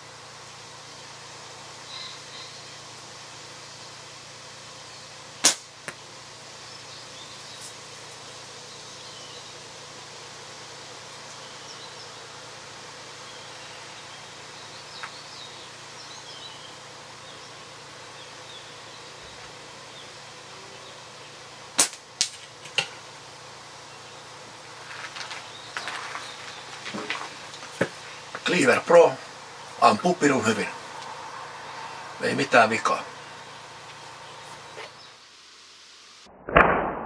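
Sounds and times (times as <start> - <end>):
sharp cracks: 5.4 - 6.0, 21.7 - 23.0, 36.3 - 37.0
slingshot bands snapping: 5.4 - 6.0, 21.8 - 22.9
ball striking target: 36.4 - 37.0.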